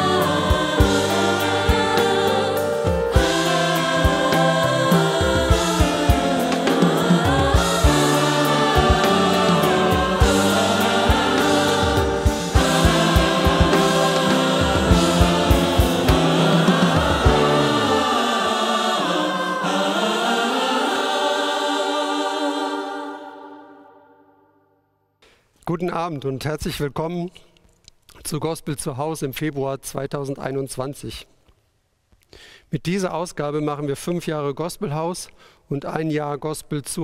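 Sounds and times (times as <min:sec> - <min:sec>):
gospel choir singing: 0:00.0 - 0:24.4
band with steady beat: 0:02.9 - 0:18.2.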